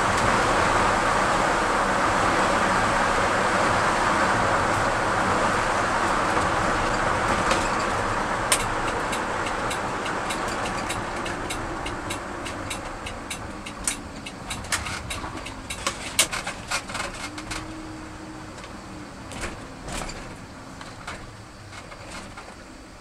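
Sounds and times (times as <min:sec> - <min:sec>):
road and tyre noise: 0:00.0 - 0:23.0
sharp clicks and ticks: 0:08.5 - 0:17.6.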